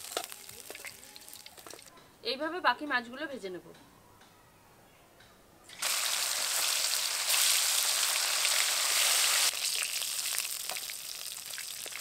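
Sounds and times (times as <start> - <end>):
fish frying in hot oil: 0.0 - 1.9, 5.8 - 12.0.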